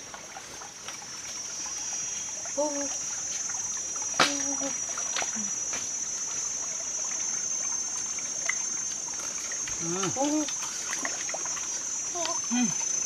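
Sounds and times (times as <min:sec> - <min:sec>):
stream trickling over rocks: 0:00.0 - 0:13.0.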